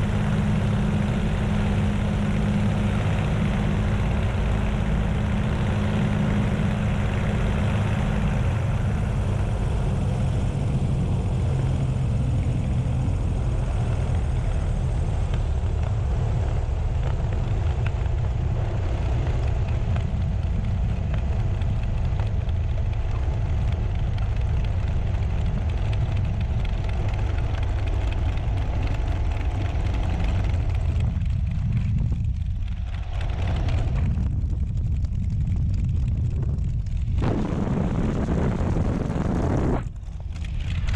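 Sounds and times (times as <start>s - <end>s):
aircraft engine low drone: 0.0s - 40.9s.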